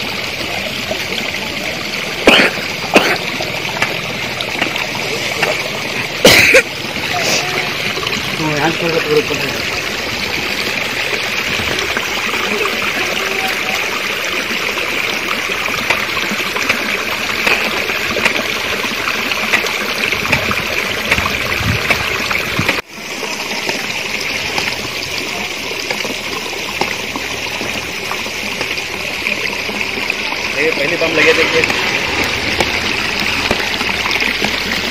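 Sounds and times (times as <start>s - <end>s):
stream flowing over rocks: 0.0s - 34.9s.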